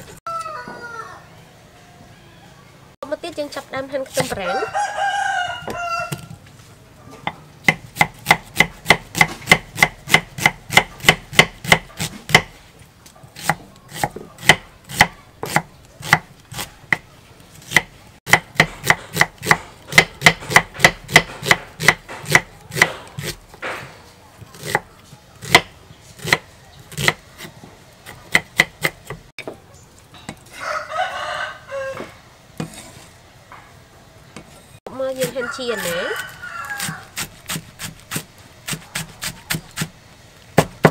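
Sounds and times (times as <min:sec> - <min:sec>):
rooster crowing: 0:00.3 - 0:02.6, 0:04.4 - 0:06.4, 0:30.5 - 0:32.2, 0:35.2 - 0:37.2
knife chopping on wooden board: 0:04.1 - 0:04.4, 0:07.2 - 0:12.5, 0:13.4 - 0:17.1, 0:17.7 - 0:23.9, 0:24.5 - 0:29.3, 0:40.6 - 0:40.9.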